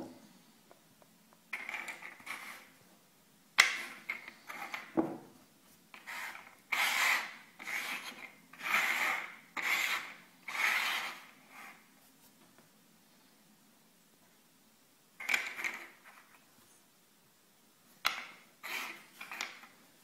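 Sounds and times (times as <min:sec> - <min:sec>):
pieces scraping on wooden table: 0:01.6 - 0:02.7, 0:03.6 - 0:05.2, 0:06.0 - 0:11.8, 0:15.2 - 0:16.3, 0:18.1 - 0:19.7.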